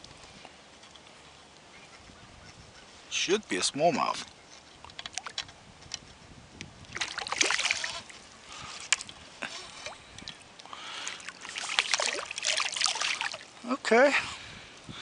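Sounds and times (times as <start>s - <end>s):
water splashing: 6.9s - 13.8s.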